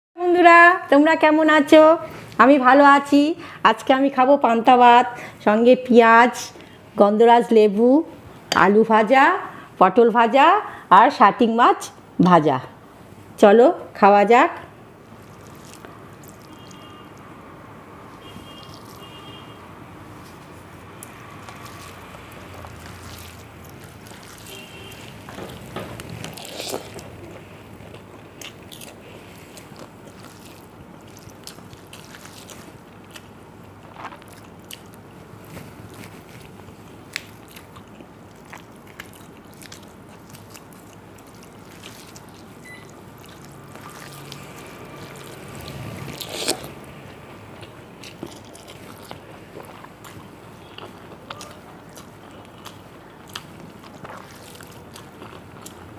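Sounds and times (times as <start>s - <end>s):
person chewing food: 15.1s - 17.3s, 18.2s - 19.4s, 20.1s - 55.9s.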